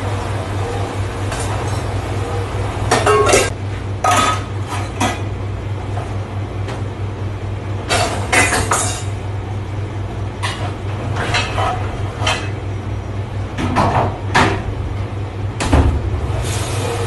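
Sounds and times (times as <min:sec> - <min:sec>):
steady low hum: 0:00.0 - 0:17.0
metal pans clattering: 0:02.9 - 0:05.3, 0:07.9 - 0:09.2, 0:10.4 - 0:12.6.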